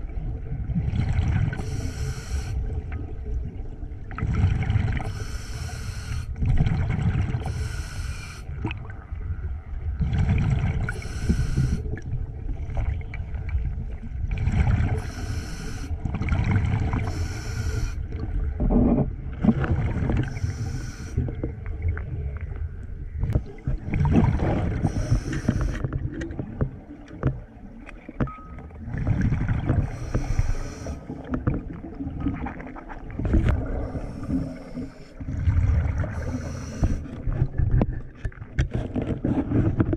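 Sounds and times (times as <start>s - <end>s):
low rumble of moving water: 0.0s - 39.9s
diver exhaling bubbles: 23.3s - 26.6s.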